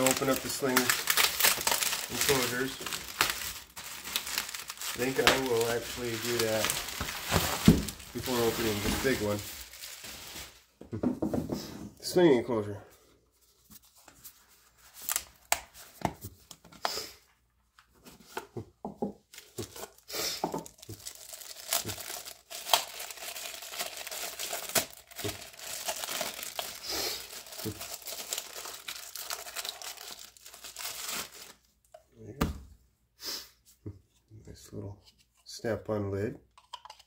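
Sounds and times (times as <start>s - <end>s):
plastic packaging crinkling and tearing: 0.0s - 10.7s, 19.3s - 31.7s.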